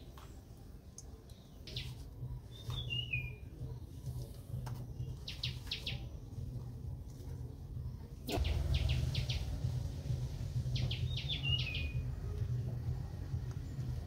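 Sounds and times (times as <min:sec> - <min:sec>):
low steady hum: 0:06.0 - 0:14.0
high bird chirps: 0:08.3 - 0:09.6, 0:10.7 - 0:12.2
bird whistling downward note: 0:10.8 - 0:12.1.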